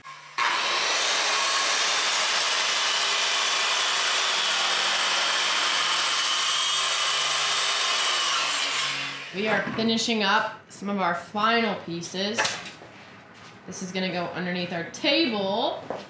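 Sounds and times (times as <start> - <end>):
circular saw cutting plywood: 0.0 - 9.6.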